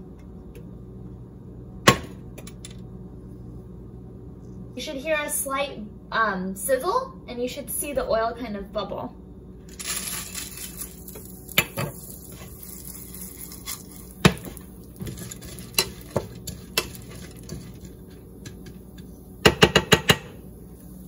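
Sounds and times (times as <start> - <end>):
seeds sizzling in oil: 9.7 - 17.6.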